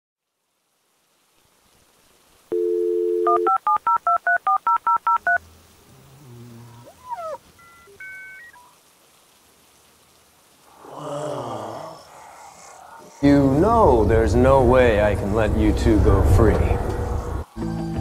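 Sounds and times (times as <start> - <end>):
telephone dial tone: 2.5 - 5.4
warbling phone line tones: 2.5 - 5.4, 7.0 - 8.7
touch-tone keypad beeps: 2.6 - 5.4
electronic beeps: 7.0 - 8.7.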